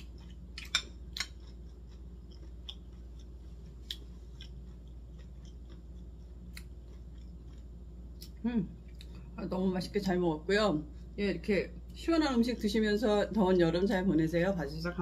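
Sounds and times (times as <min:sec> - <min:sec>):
person chewing: 0:00.0 - 0:09.3.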